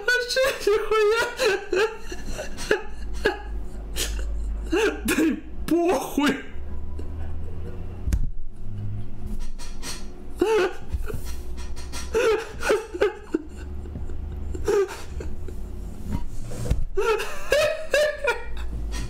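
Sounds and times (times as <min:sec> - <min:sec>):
man giggling: 0:00.0 - 0:05.1, 0:10.4 - 0:16.1, 0:17.0 - 0:19.0
low steady hum: 0:00.0 - 0:19.0.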